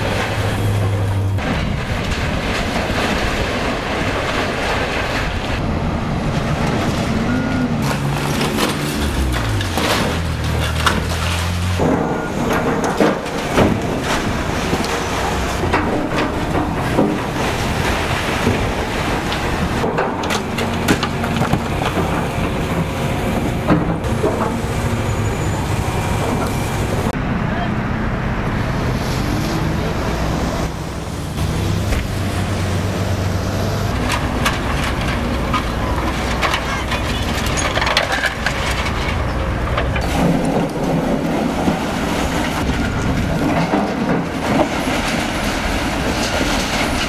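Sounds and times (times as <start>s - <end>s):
debris breaking and falling: 0.0s - 5.6s, 6.2s - 24.8s, 33.9s - 47.0s
crunching masonry: 0.0s - 27.2s, 31.3s - 47.0s
excavator diesel engine: 0.0s - 47.0s.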